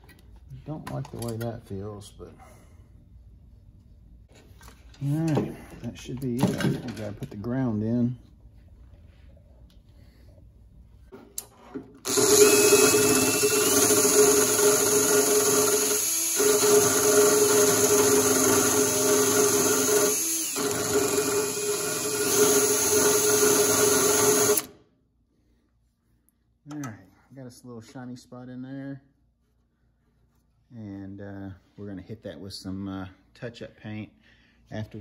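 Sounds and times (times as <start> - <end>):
cordless drill drilling metal: 12.0 - 24.8.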